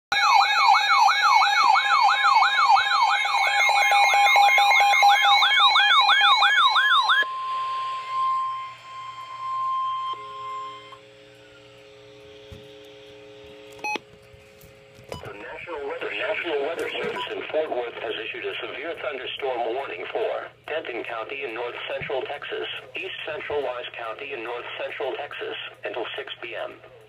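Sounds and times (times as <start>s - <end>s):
electronic siren alarm warbling: 0.1s - 11.8s
steady warning alert tone: 15.1s - 25.7s.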